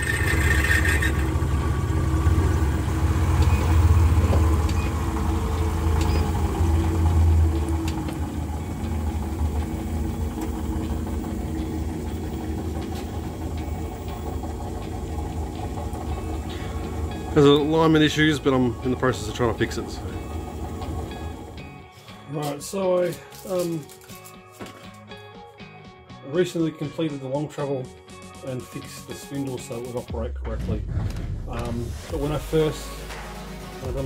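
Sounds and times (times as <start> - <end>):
lathe motor humming: 0.0 - 21.8.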